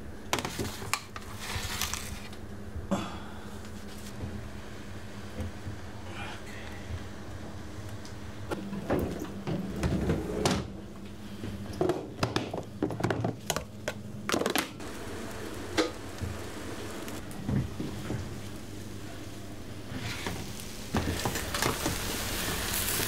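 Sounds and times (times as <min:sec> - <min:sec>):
steady low hum: 0:00.0 - 0:23.0
kitchen knocks and clatter: 0:11.8 - 0:14.7.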